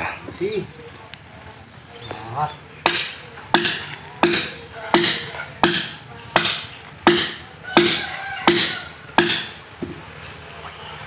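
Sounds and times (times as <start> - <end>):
hand tool striking wood: 2.8 - 10.0.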